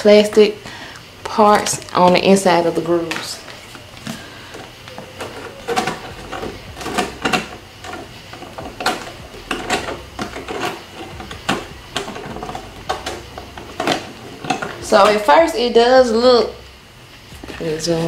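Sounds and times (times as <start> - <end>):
plastic panels clicking: 4.0 - 15.2.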